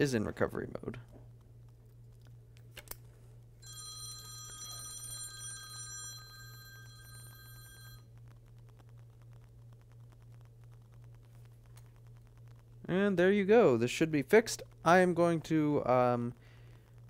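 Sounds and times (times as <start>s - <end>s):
low steady hum: 0.0s - 17.0s
electronic telephone ringing: 3.6s - 8.1s.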